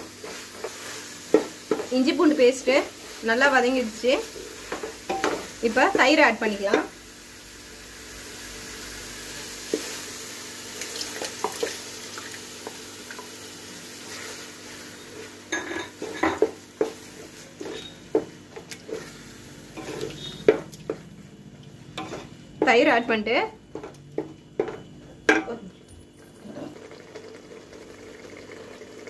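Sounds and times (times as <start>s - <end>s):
food sizzling in pot: 0.0s - 25.0s, 26.4s - 29.0s
spoon scraping metal pot: 17.6s - 18.0s.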